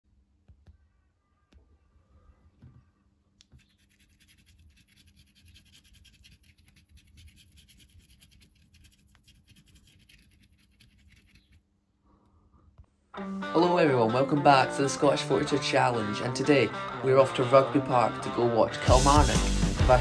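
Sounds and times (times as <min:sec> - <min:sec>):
coin scratching foil: 0:03.6 - 0:11.6.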